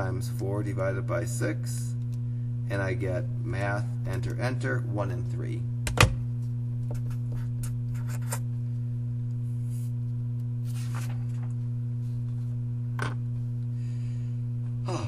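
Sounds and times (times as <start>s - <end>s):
low electrical hum: 0.0s - 15.0s
paper rustling: 10.6s - 11.6s.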